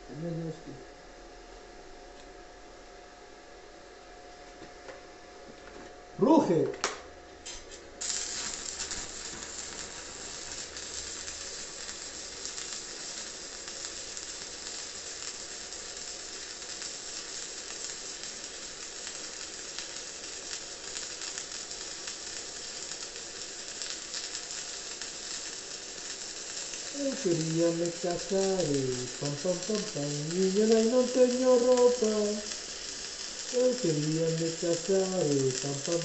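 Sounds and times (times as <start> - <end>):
welding arc burning: 7.4 - 36.0.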